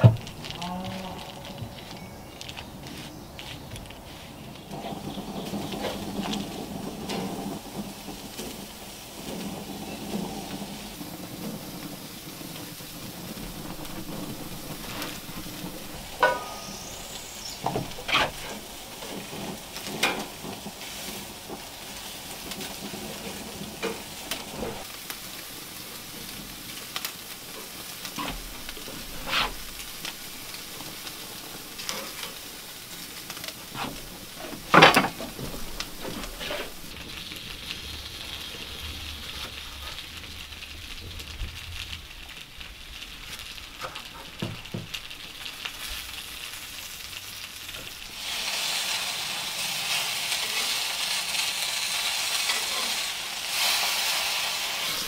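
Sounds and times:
sausages sizzling on grill: 0.0s - 55.0s
clicks and knocks on grill: 4.7s - 16.8s, 17.6s - 20.7s, 33.2s - 37.1s, 43.8s - 45.0s.

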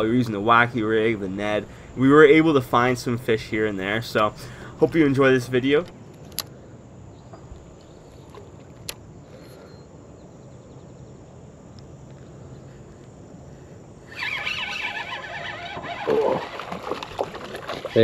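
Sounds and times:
fishing reel whirring: 14.1s - 18.0s.

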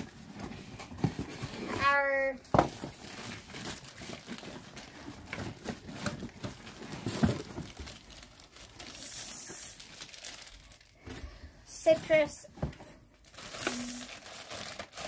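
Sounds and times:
packaging crinkling and rustling: 0.0s - 11.2s, 11.9s - 15.0s
packaging tearing: 3.0s - 10.9s, 13.2s - 15.0s.

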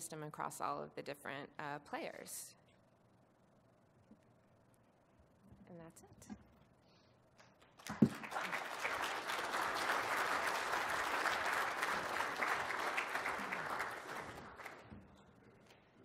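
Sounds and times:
audience applauding: 7.8s - 14.9s.

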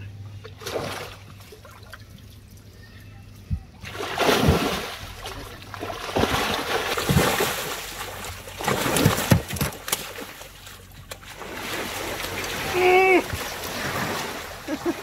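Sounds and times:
fish splashing in water: 3.8s - 14.9s.

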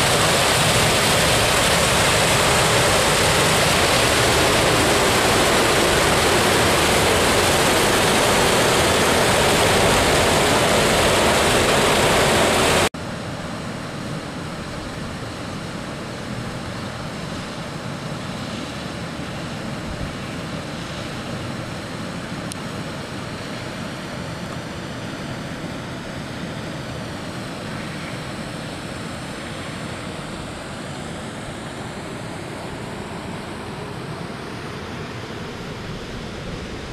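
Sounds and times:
water rushing echoing: 0.0s - 12.9s.

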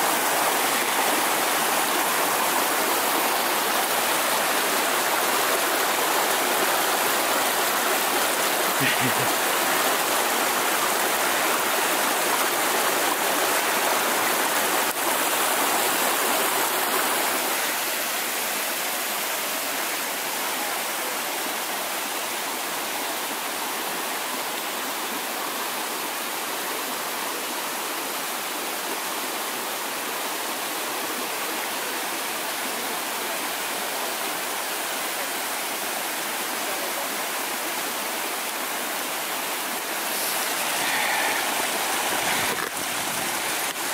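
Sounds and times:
brook rushing over rocks: 40.0s - 43.9s.

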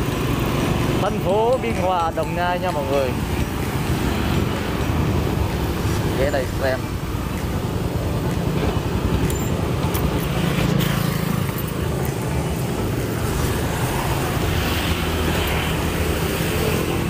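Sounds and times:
vehicle engine running close by: 0.0s - 1.4s
street traffic noise: 0.0s - 17.0s.

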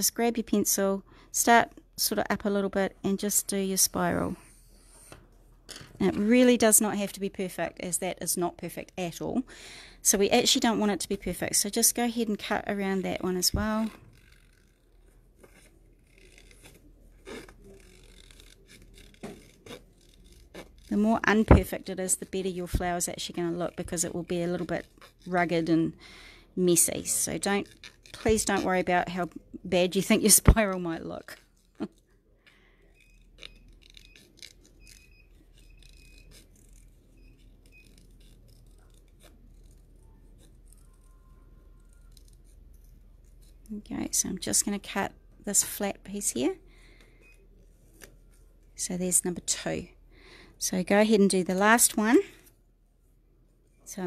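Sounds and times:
scissors snipping cardstock: 15.4s - 25.7s, 26.8s - 29.2s, 33.2s - 41.1s.

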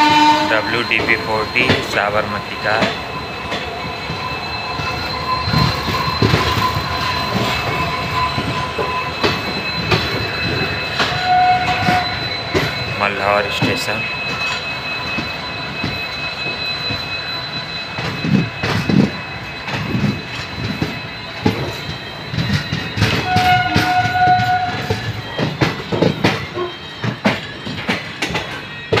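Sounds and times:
train horn: 0.0s - 1.1s, 11.0s - 12.3s, 23.1s - 25.0s
diesel locomotive whine and rumble: 0.0s - 29.0s.

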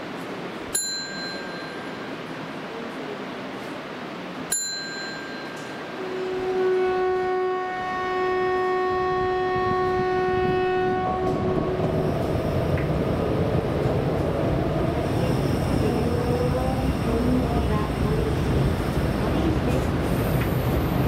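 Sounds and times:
train running rumble: 0.0s - 21.0s
train horn long note: 5.9s - 12.6s.

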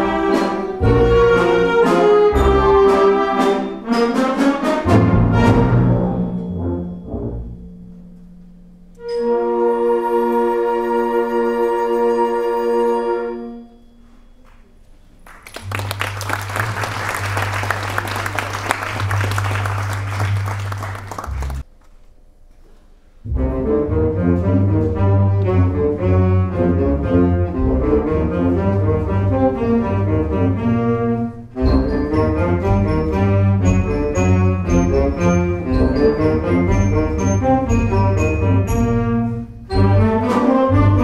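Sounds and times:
concert band playing: 15.7s - 21.6s, 24.2s - 41.0s.

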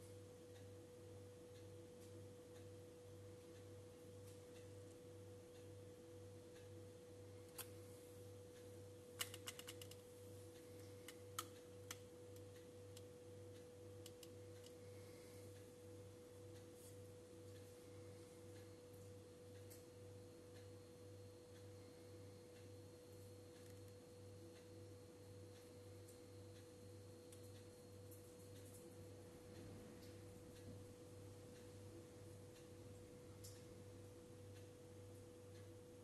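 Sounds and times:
steady low hum: 0.0s - 36.0s
small clicks: 8.6s - 10.0s, 14.0s - 14.8s.

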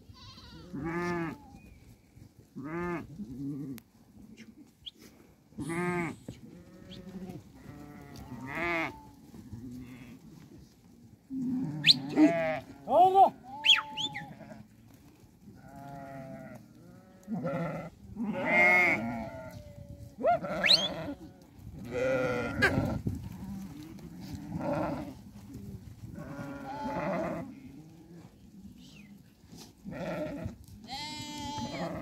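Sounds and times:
sheep bleating: 0.1s - 1.6s, 5.6s - 9.2s, 11.4s - 14.7s, 15.6s - 19.6s, 20.2s - 23.0s, 26.2s - 27.6s, 29.9s - 32.0s.

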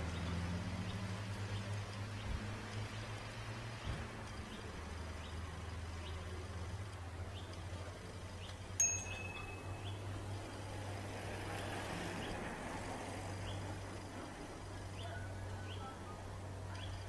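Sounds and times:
brief high ding: 8.8s - 10.0s.

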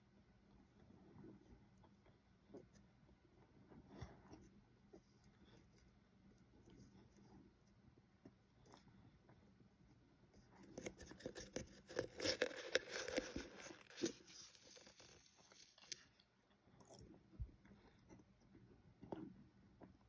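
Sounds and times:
spoon crunching powdered cornstarch: 10.5s - 17.2s.

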